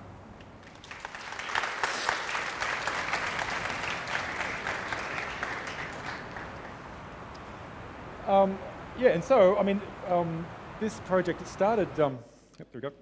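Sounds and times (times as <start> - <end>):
audience applauding: 0.6 - 7.0.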